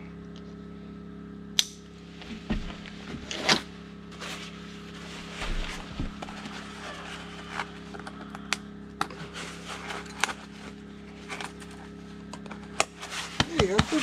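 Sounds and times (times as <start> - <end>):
steady low hum: 0.0 - 14.0
fabric rustling and rubbing: 4.1 - 7.7, 9.2 - 11.4, 12.9 - 14.0.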